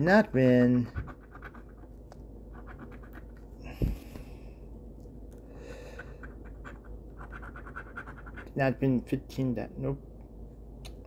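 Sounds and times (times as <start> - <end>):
ticket scratching strokes: 0.0 - 3.5, 5.9 - 8.7.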